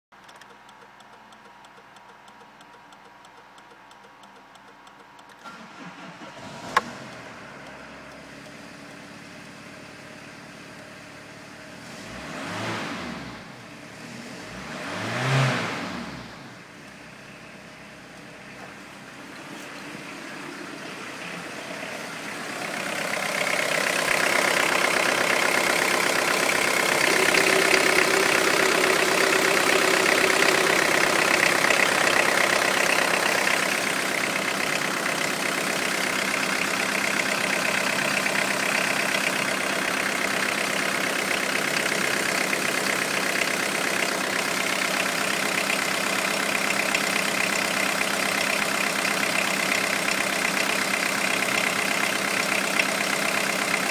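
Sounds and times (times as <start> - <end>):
diesel engine idling: 5.5 - 12.2, 16.5 - 53.9.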